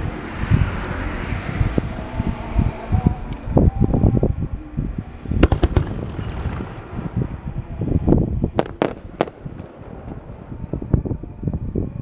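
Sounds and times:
fireworks bangs and cracks: 5.4s - 7.4s, 8.5s - 10.9s.

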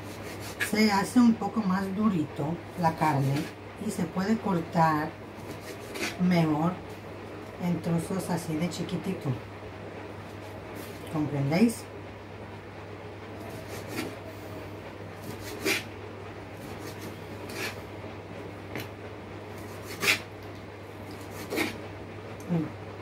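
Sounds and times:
knife rasping through meat: 0.0s - 0.8s, 5.4s - 6.2s, 13.4s - 14.2s, 15.2s - 15.9s, 16.6s - 17.8s, 19.6s - 20.3s, 21.1s - 21.8s
steady low hum: 0.0s - 23.0s.

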